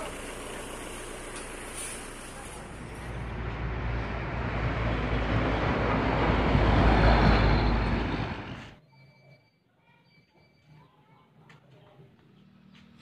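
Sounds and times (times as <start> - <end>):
heavy vehicle rumble: 0.0 - 8.8.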